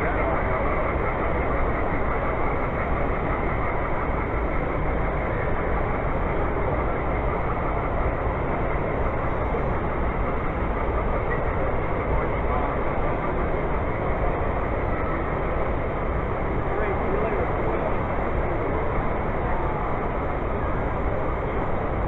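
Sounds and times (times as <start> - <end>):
exhibition hall rumble and hiss: 0.0 - 22.0
model train rolling on track: 0.0 - 22.0.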